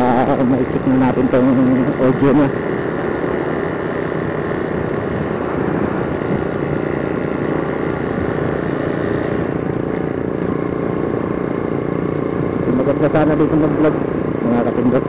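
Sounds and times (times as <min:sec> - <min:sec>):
motorcycle engine cruising: 0:00.0 - 0:15.0
road noise: 0:00.0 - 0:15.0
wind rush: 0:04.2 - 0:09.8.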